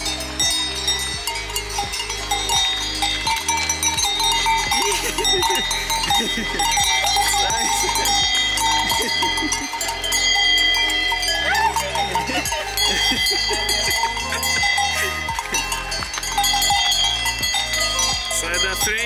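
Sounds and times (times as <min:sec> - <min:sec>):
cowbells clanking: 0:00.0 - 0:19.0.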